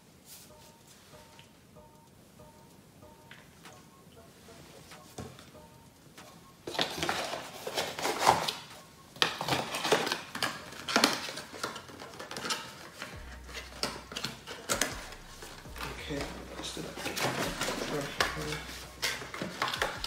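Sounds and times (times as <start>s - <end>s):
packaging rustling and crinkling: 6.6s - 20.0s.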